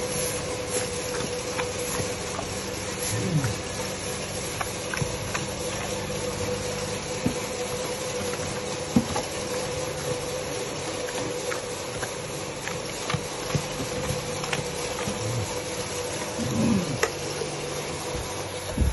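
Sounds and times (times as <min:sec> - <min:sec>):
pig chomping and munching: 0:00.0 - 0:18.9
steady hum: 0:00.0 - 0:18.9
pig grunt: 0:03.0 - 0:04.0, 0:12.8 - 0:17.4.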